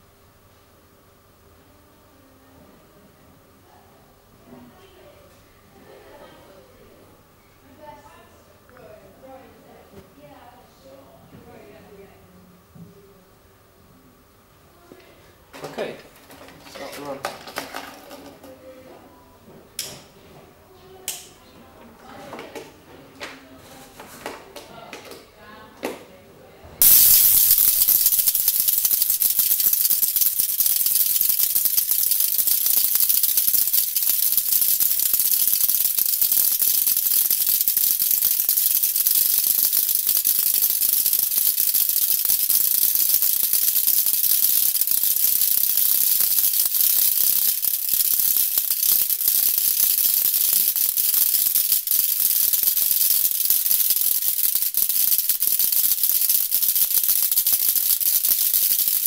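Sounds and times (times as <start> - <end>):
spark gap crackling: 26.8 - 59.0.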